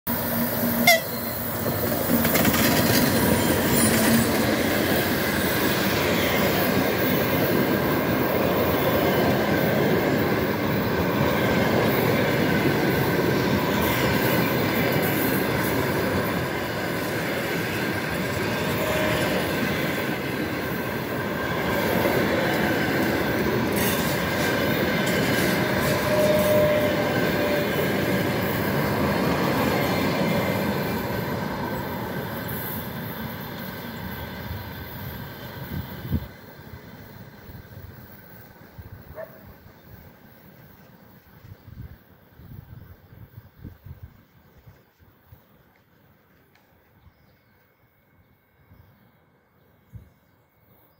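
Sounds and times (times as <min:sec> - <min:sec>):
train wheels rumbling on rails: 0:00.1 - 0:47.6
faint wheel squeal: 0:25.8 - 0:27.2.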